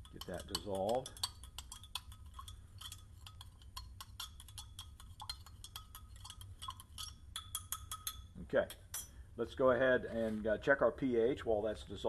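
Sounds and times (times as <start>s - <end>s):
stirrer clinking against glass: 0.0s - 9.1s.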